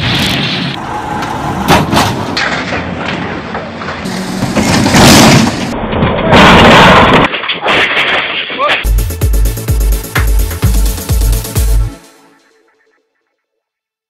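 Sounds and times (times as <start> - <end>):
heavy machinery: 0.0 - 7.3
loud crashes and booms: 4.4 - 8.0.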